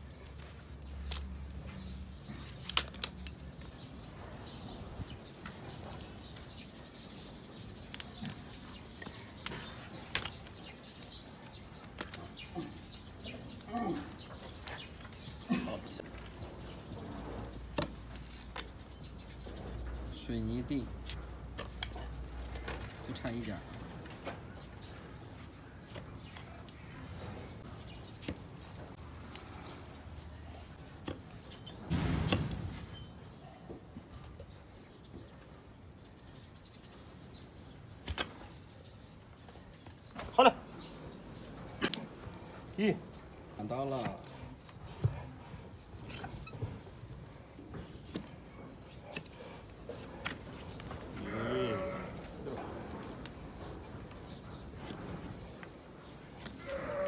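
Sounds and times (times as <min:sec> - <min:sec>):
crunching thump: 0:31.8 - 0:33.0
hoof nippers snapping: 0:38.0 - 0:38.6.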